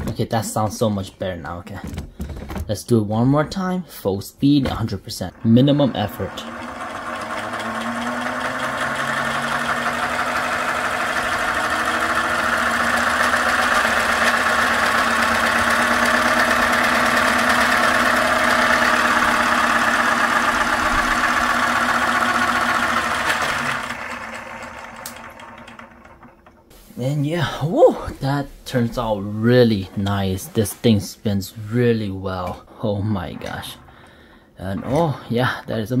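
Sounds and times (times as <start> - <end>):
turbocharger model whirring: 5.3 - 26.6.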